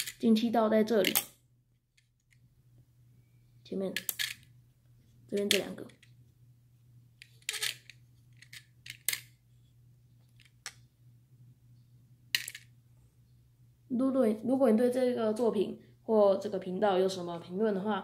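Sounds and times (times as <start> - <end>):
plastic bricks clicking on tile: 1.0 - 1.3, 4.0 - 4.4, 5.4 - 6.1, 7.2 - 9.3.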